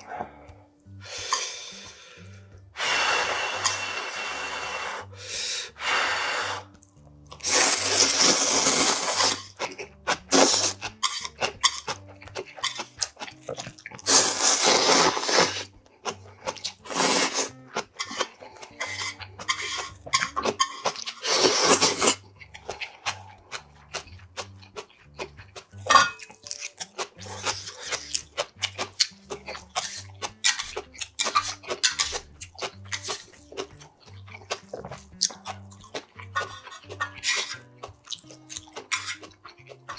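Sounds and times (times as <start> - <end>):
noodle slurping: 5.8 - 12.0, 12.6 - 24.1, 27.1 - 33.4, 34.0 - 39.9
chewing: 6.7 - 39.9.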